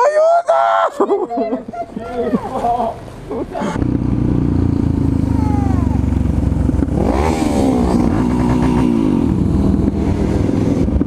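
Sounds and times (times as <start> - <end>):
motorcycle engine revving: 3.1 - 11.0.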